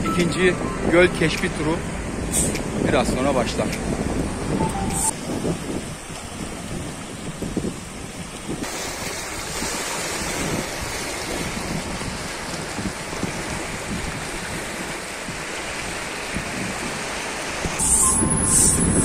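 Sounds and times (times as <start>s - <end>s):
small waves lapping on stones: 5.6s - 17.7s
thin high whistle: 17.8s - 19.0s.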